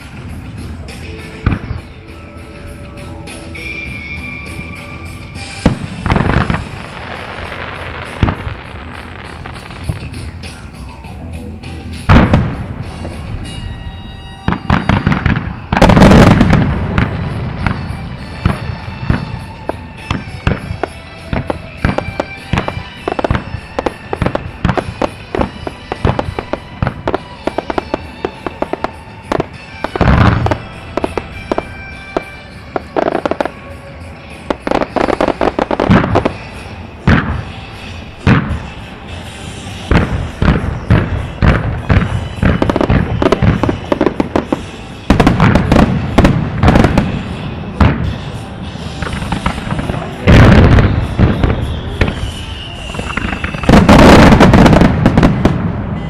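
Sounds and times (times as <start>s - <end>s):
firework bursts and crackle: 0.0s - 56.0s
music: 0.0s - 56.0s
big firework boom: 14.4s - 19.4s, 37.1s - 37.5s, 49.0s - 56.0s.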